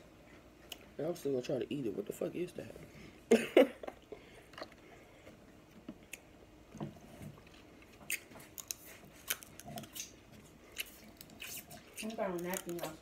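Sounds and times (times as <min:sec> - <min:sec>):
mouth chewing and sucking: 0:07.3 - 0:13.0
mouth clicks and smacks: 0:08.0 - 0:12.7.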